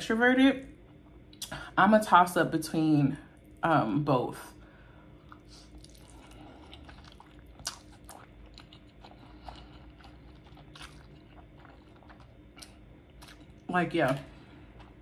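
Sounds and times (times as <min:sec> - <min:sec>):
chewing and slurping noodles: 0:05.2 - 0:13.6.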